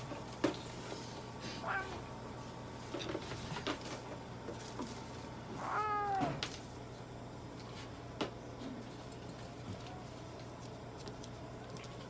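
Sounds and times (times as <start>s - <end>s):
cat meowing: 1.6s - 2.1s, 5.6s - 6.4s.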